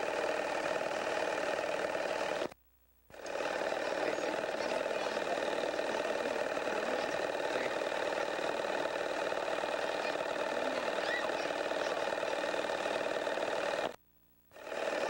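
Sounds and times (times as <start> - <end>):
small motor whirring: 0.0 - 15.0.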